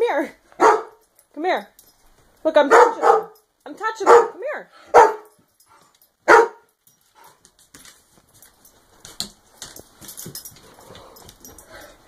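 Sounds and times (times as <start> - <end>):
dog barking sharply: 0.6 - 0.9, 2.7 - 3.4, 4.0 - 5.3, 6.3 - 6.7
faint rustling: 4.7 - 12.0.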